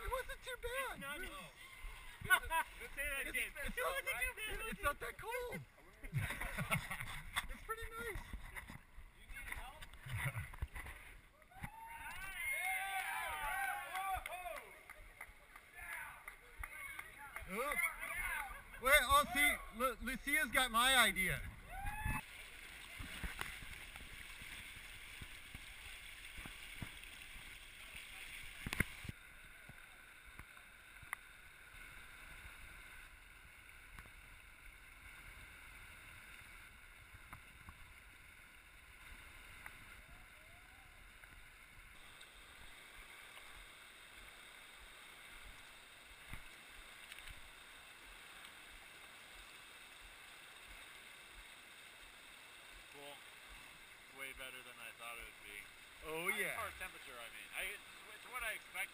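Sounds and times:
muffled river water rushing: 0.0s - 58.9s.

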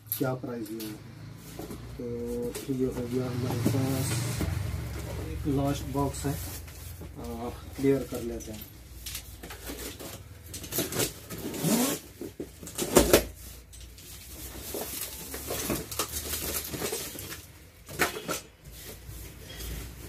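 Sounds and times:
packing tape tearing: 9.0s - 13.4s, 14.6s - 18.5s.

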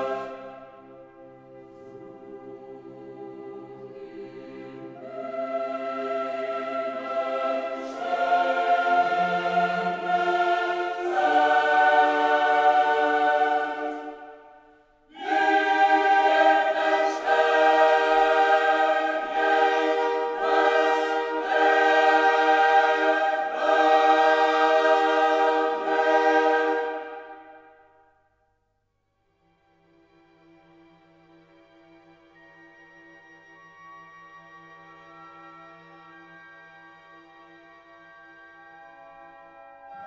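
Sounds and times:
choir-like sustained chords: 0.0s - 28.0s.

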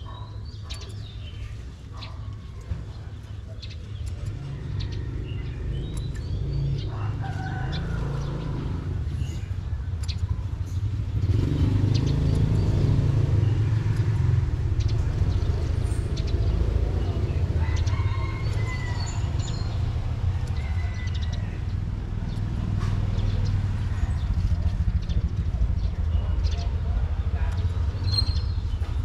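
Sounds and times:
low rumble of traffic: 0.0s - 29.0s
bird chirps: 27.6s - 29.0s.

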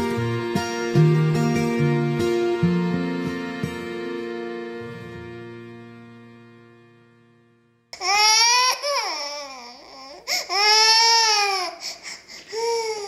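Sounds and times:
toddler crying: 8.0s - 13.0s.

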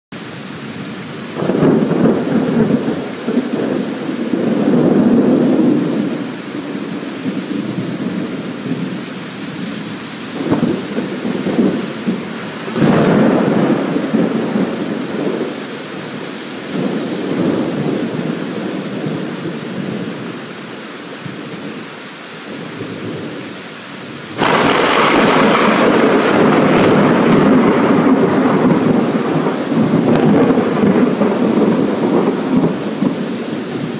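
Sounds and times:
steady rain: 0.1s - 33.9s
thunder rumbling: 1.2s - 20.3s, 24.3s - 33.9s
sharp thunder crack: 10.4s - 15.6s, 24.4s - 33.2s.

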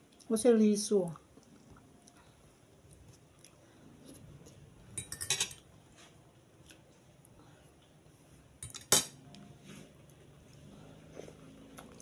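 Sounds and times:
metal fork clinking: 5.0s - 5.6s.

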